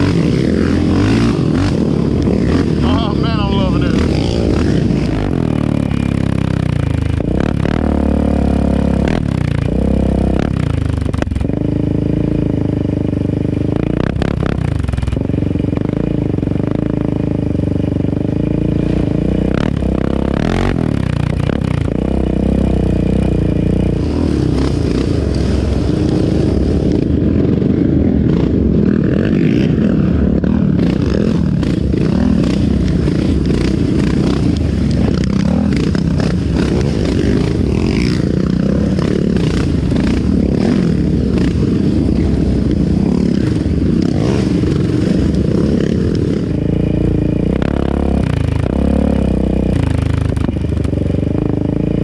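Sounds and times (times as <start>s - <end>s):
atv engine revving: 0.0s - 52.0s
tyres on dirt: 18.0s - 52.0s.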